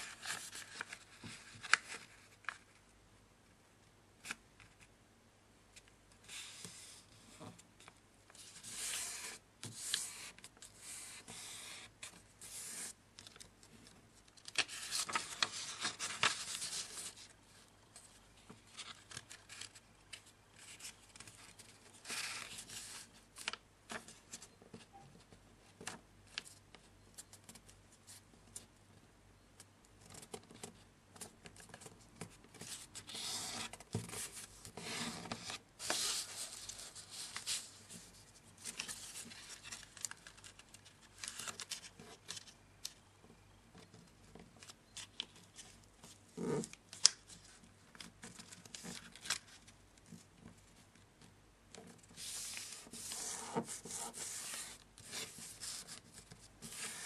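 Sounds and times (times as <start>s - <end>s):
paper rustling and sliding: 14.4s - 17.3s, 32.6s - 42.5s, 52.0s - 57.0s.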